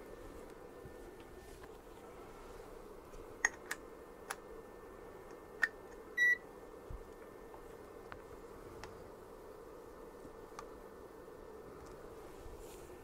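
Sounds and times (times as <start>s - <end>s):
test meter beep: 6.2s - 6.4s.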